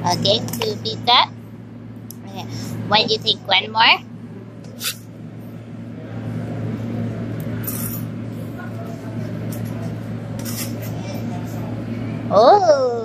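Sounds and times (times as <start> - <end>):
low hum: 0.0 - 13.0
murmur of voices: 2.2 - 13.0.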